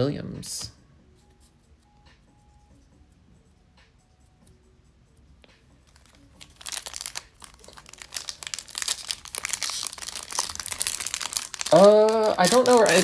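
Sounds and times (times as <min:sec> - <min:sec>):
wrapper crinkling and tearing: 0:05.9 - 0:13.0.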